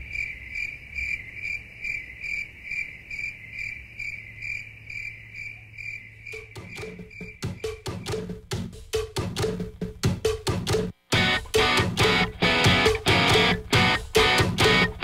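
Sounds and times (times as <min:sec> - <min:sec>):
cricket chirping: 0:00.0 - 0:08.4
wood-block percussion music: 0:06.4 - 0:15.0.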